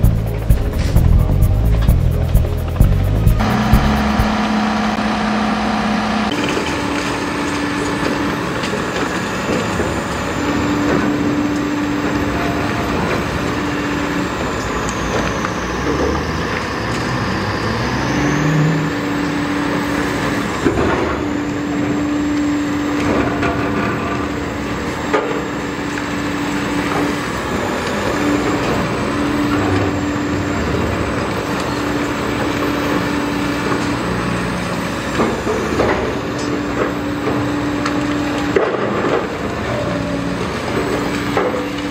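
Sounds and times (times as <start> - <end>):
hydraulic hum: 0.0 - 8.4
engine revving: 0.0 - 8.5, 11.9 - 24.0
diesel engines under load: 0.0 - 41.9.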